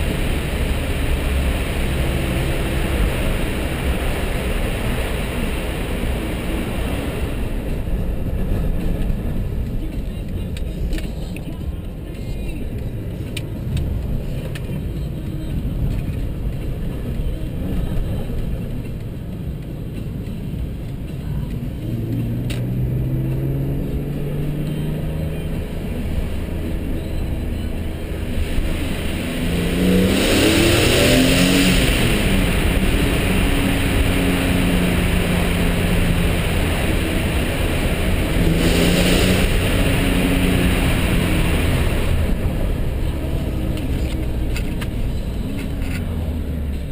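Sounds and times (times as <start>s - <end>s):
car engine accelerating hard: 0.0s - 9.5s, 21.8s - 46.9s.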